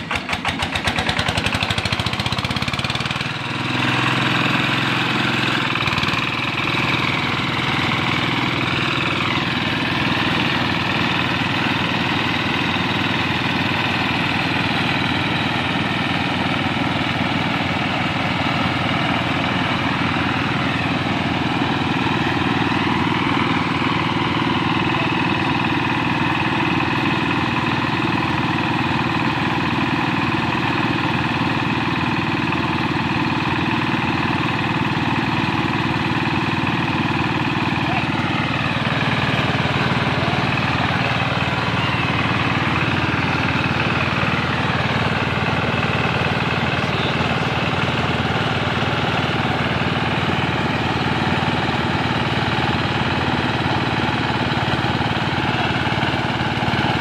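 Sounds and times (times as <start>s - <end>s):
small engine running: 0.0s - 57.0s.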